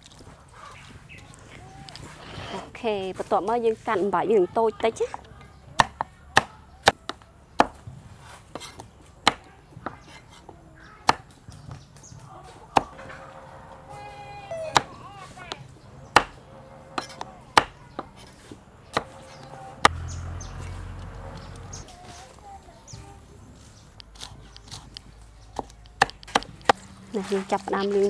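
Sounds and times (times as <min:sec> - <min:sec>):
knife chopping on wooden board: 0:16.2 - 0:16.4, 0:17.0 - 0:19.2.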